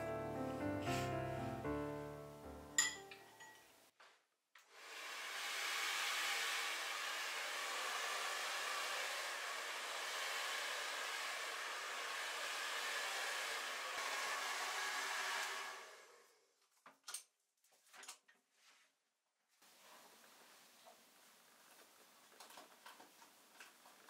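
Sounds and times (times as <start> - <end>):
hair dryer blowing: 4.7 - 16.4.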